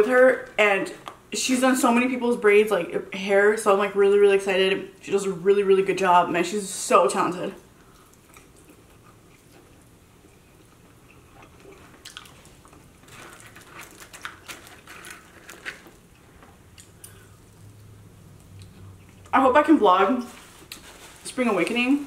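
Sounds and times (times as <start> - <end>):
biting and chewing chicken wing: 7.9 - 16.0.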